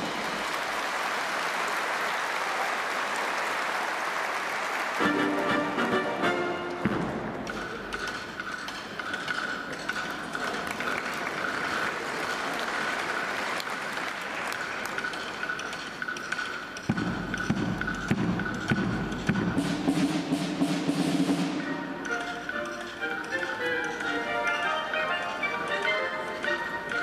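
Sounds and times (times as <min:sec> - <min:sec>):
audience applauding: 0:00.0 - 0:06.4, 0:10.3 - 0:15.4
military band percussion and brass: 0:05.0 - 0:27.0.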